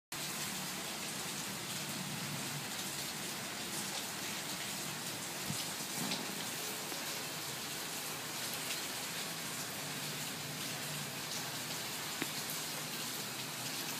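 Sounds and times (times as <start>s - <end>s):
steady rain falling: 0.1s - 13.9s
water splashes: 2.8s - 13.9s.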